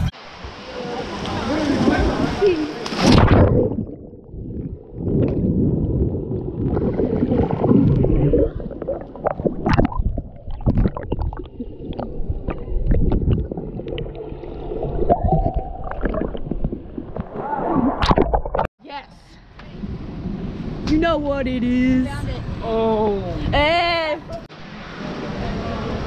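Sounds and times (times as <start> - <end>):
underwater churning rumble: 0.6 - 18.7.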